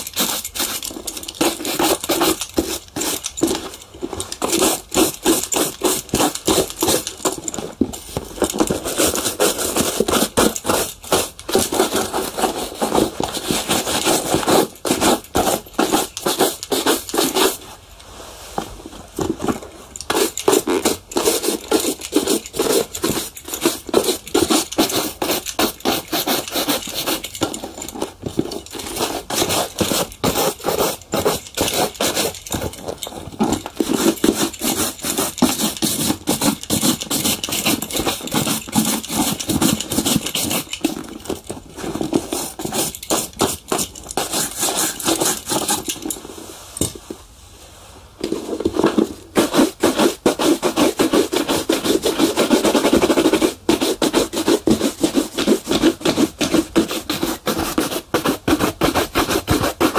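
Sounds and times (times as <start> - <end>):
shoe polishing strokes: 8.6 - 17.6, 20.1 - 27.6, 33.5 - 40.8, 49.4 - 59.9.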